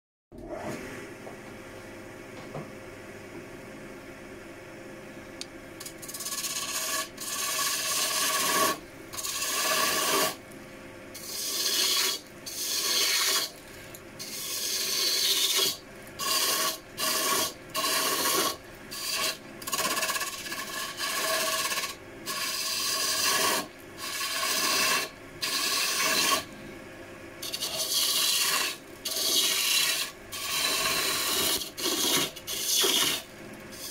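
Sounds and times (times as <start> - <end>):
gouge scraping spinning wood: 5.8 - 10.4, 11.2 - 26.6, 27.4 - 33.9
lathe motor hum: 14.2 - 26.6, 27.5 - 33.2.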